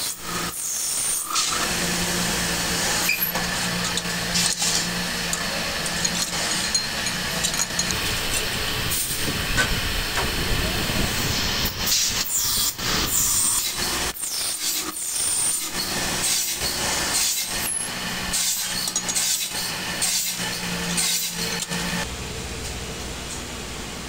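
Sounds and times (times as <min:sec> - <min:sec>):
lathe rasping scrapes: 0:00.2 - 0:09.1, 0:11.2 - 0:22.0
motor hum: 0:01.4 - 0:12.0.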